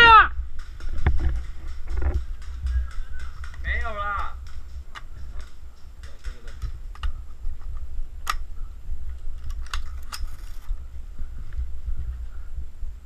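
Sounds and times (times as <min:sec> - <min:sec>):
camera handling rumble: 0:09.1 - 0:10.8.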